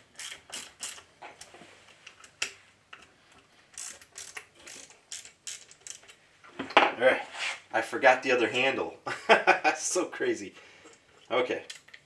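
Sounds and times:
hand tool clicking on screws: 0:00.1 - 0:01.1, 0:03.7 - 0:06.2.

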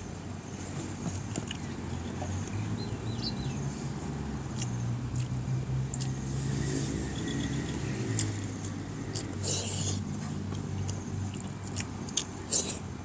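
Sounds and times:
chewing: 0:01.0 - 0:02.6, 0:04.5 - 0:06.2, 0:08.0 - 0:12.9
bird chirping: 0:01.6 - 0:03.9.

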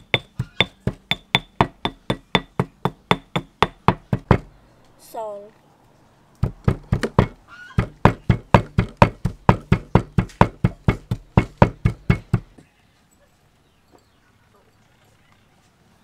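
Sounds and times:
stone pestle pounding in a mortar: 0:00.0 - 0:04.5, 0:06.4 - 0:12.6.

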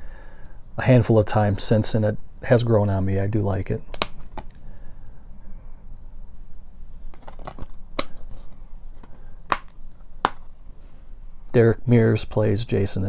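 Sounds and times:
plastic disc case clicks: 0:03.9 - 0:04.5, 0:07.1 - 0:08.3, 0:09.5 - 0:10.5.

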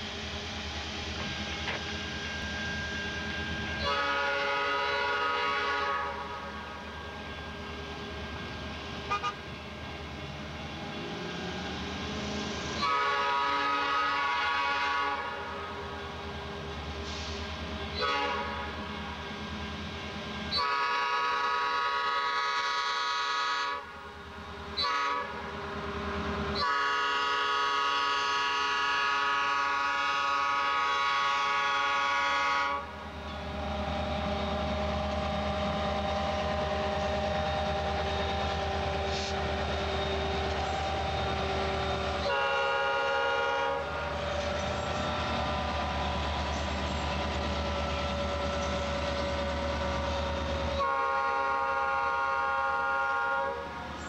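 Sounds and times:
locomotive air horn blasts: 0:03.8 - 0:06.8, 0:09.1 - 0:09.4, 0:12.8 - 0:15.7, 0:18.0 - 0:18.8, 0:20.5 - 0:23.9, 0:24.8 - 0:25.5, 0:26.6 - 0:32.9, 0:42.2 - 0:44.2, 0:50.7 - 0:53.8.

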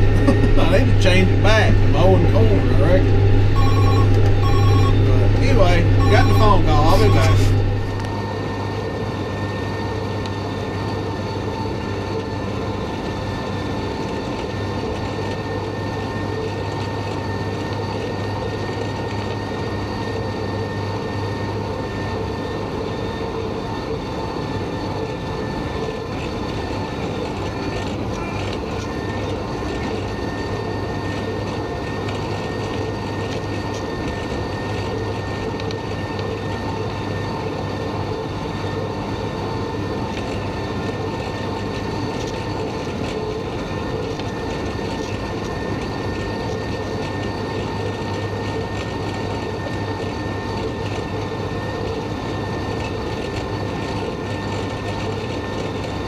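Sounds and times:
mower cutterbar whine: 0:00.0 - 0:08.1.

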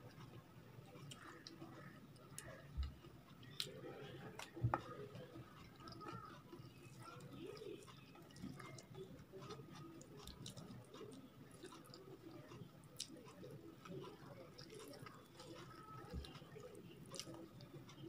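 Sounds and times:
fingers squishing soft food: 0:00.0 - 0:18.0
wet chewing with mouth clicks: 0:00.0 - 0:18.0.

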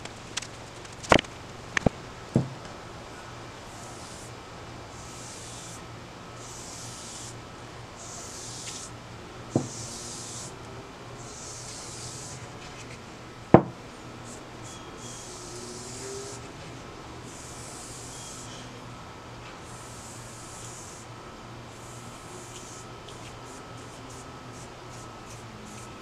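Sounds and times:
sharp knocks: 0:01.1 - 0:02.7, 0:13.6 - 0:13.8.

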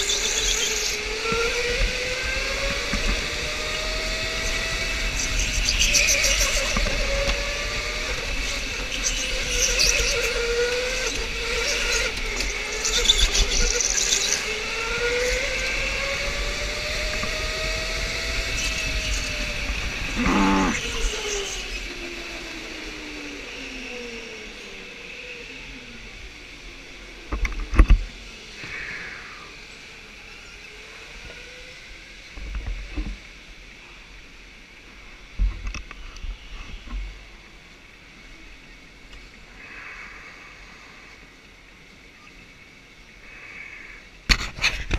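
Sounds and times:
electric go-kart motor whining: 0:00.0 - 0:33.3.

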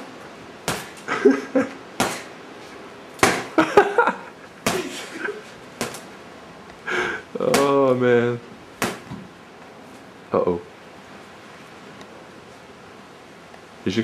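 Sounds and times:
punches thudding on punching bag: 0:00.6 - 0:01.0, 0:02.0 - 0:02.3, 0:03.2 - 0:03.6, 0:04.6 - 0:05.0, 0:05.8 - 0:06.0, 0:07.4 - 0:07.8, 0:08.8 - 0:09.3.

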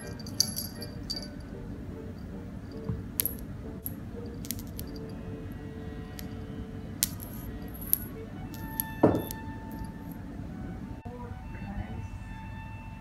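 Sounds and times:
cat toy jingling on tile floor: 0:00.0 - 0:01.4, 0:04.3 - 0:05.2
ringing knock: 0:08.6 - 0:10.0.

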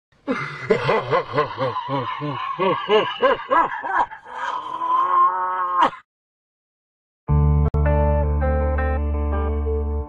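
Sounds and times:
man laughing deeply: 0:00.3 - 0:04.8.

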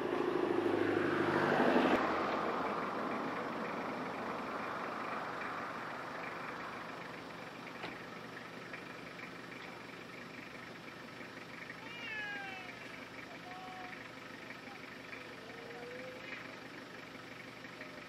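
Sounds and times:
vehicle passing by: 0:00.0 - 0:07.6
steady engine hum: 0:00.0 - 0:18.0.

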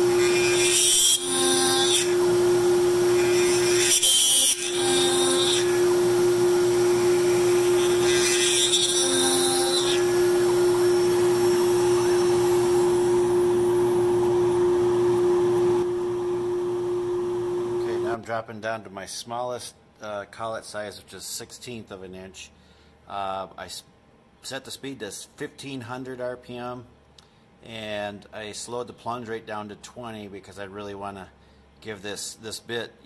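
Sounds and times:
router spindle whine: 0:00.0 - 0:04.0, 0:04.6 - 0:18.2
drill bit cutting wood: 0:00.0 - 0:16.0.

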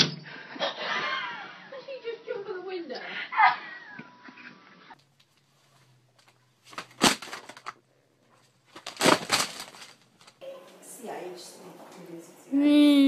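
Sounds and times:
clattering crackling bursts: 0:06.2 - 0:07.8, 0:08.6 - 0:10.4.

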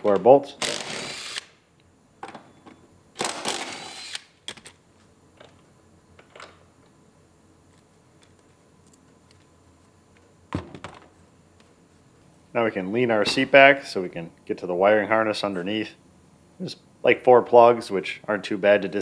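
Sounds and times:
cordless power tool running: 0:00.6 - 0:01.5, 0:03.2 - 0:04.3.

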